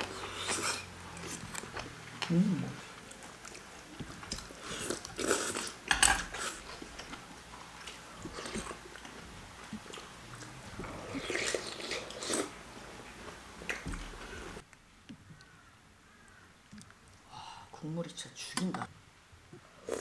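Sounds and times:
person chewing food: 0:00.0 - 0:14.4.

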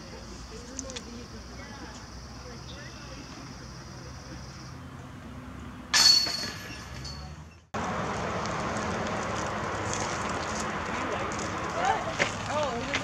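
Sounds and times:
outdoor rushing noise: 0:02.2 - 0:13.0
disc hitting chain basket: 0:05.9 - 0:07.3.

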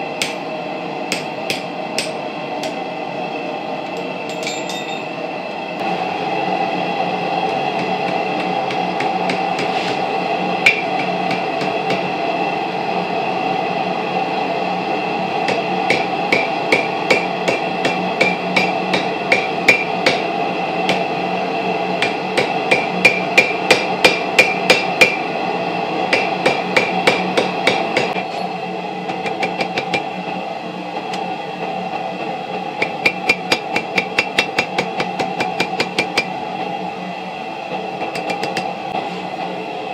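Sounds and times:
steady hum: 0:00.0 - 0:39.9
hammer striking metal on anvil: 0:00.2 - 0:00.4, 0:01.1 - 0:02.8, 0:04.3 - 0:05.1, 0:07.5 - 0:10.0, 0:10.6 - 0:12.1, 0:15.5 - 0:20.3, 0:22.0 - 0:25.2, 0:26.1 - 0:28.4, 0:29.1 - 0:30.1, 0:32.8 - 0:36.3, 0:38.2 - 0:38.7
anvil ringing: 0:04.3 - 0:05.1.

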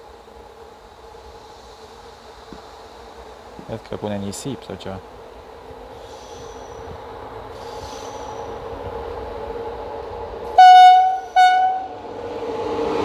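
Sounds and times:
train rumble: 0:00.0 - 0:13.0
locomotive horn blasts: 0:10.6 - 0:12.0.

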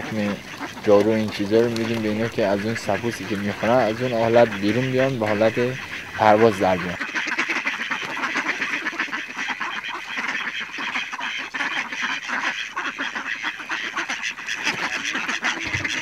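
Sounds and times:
ducks quacking: 0:00.0 - 0:16.0.

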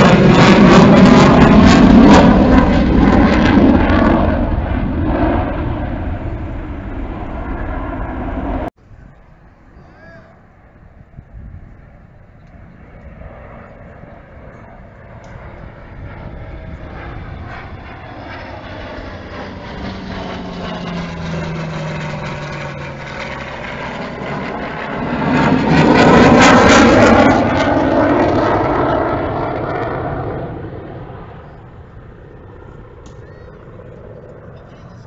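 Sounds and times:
low tone dropping in pitch: 0:00.0 - 0:09.3
aircraft engines passing overhead: 0:00.0 - 0:35.0.

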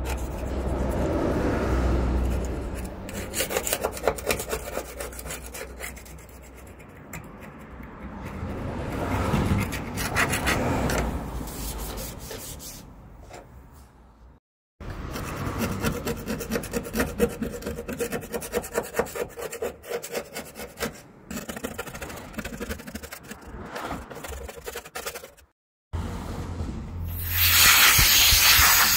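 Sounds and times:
blade scraping steel floor: 0:00.0 - 0:13.9.

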